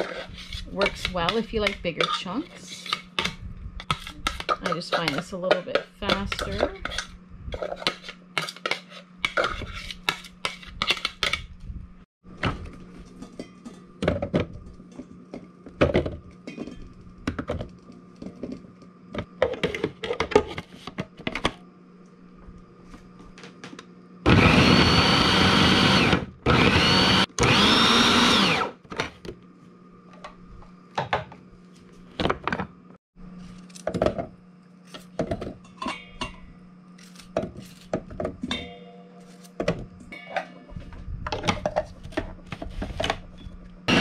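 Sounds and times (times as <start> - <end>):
food processor motor pulsing: 24.2 - 28.8.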